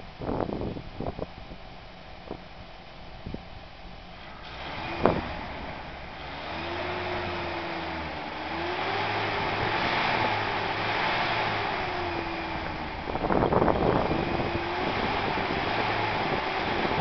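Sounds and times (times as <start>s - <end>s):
engine revving: 4.2s - 17.0s.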